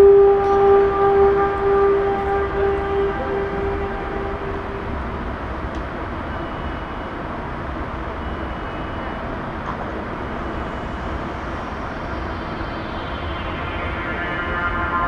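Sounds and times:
outdoor rumble and hiss: 0:00.0 - 0:15.0
held music tone: 0:10.3 - 0:15.0.

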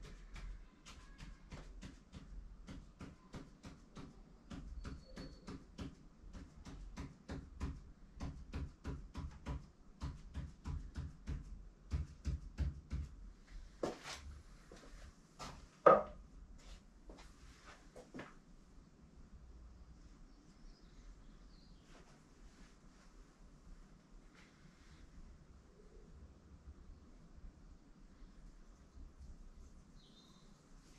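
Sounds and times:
pen tapping strokes on paper: 0:00.0 - 0:13.2
loud knock: 0:15.9 - 0:16.2.

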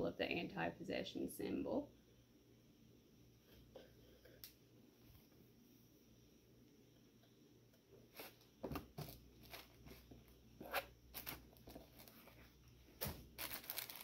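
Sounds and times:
cloth rustling: 0:09.0 - 0:14.0.

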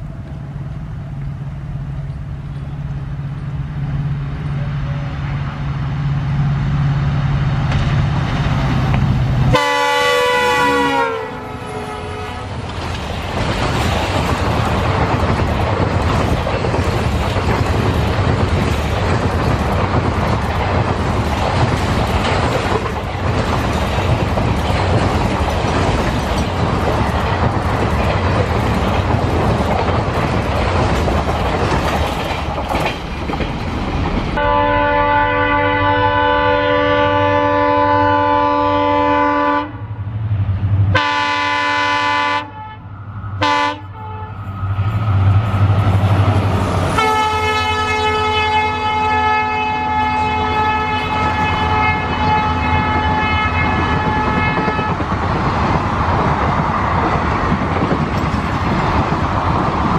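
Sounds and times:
diesel locomotive engine drone: 0:00.0 - 0:59.9
train wheels rumbling on rails: 0:00.0 - 0:59.9
train horn: 0:09.5 - 0:12.6, 0:34.4 - 0:40.0, 0:40.9 - 0:44.6, 0:46.9 - 0:55.1.

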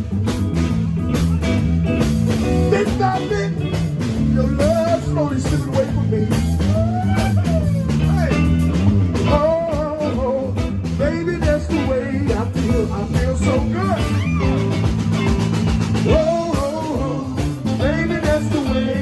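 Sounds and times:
blues band playing: 0:00.0 - 0:19.0.

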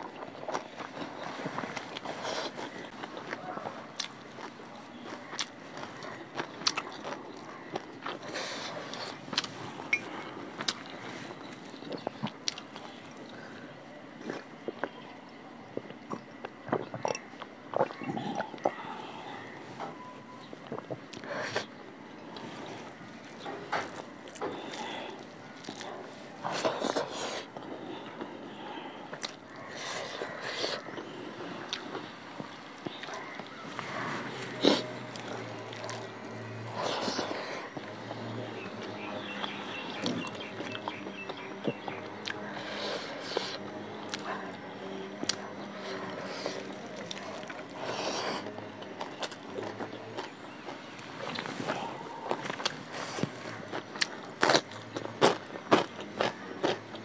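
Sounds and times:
chewing: 0:00.0 - 0:57.0
road traffic noise: 0:18.0 - 0:57.0.

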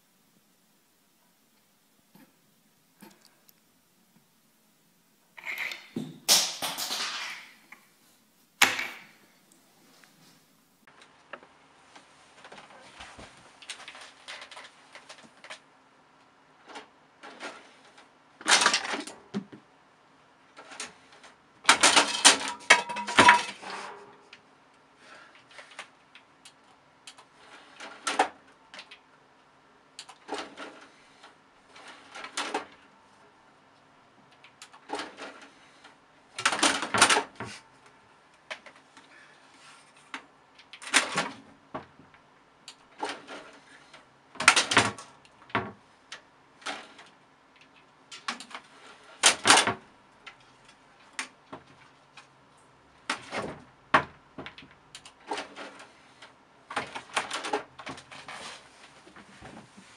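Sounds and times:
faint steady hum: 0:00.0 - 0:59.9
small hard objects clattering: 0:21.7 - 0:23.8.

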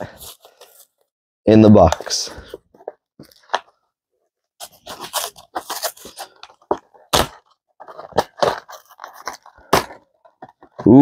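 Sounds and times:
cardboard box rustling and scraping: 0:04.6 - 0:10.8.

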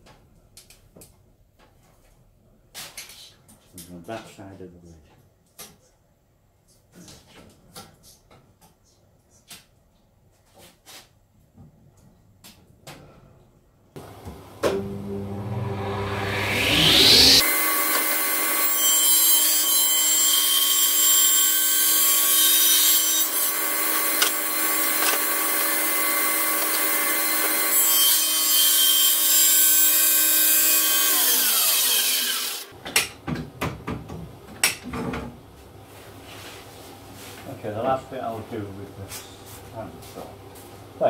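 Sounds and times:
table saw cutting board: 0:14.0 - 0:32.7
saw blade winding down: 0:14.6 - 0:20.0, 0:23.2 - 0:28.3, 0:29.4 - 0:32.7.

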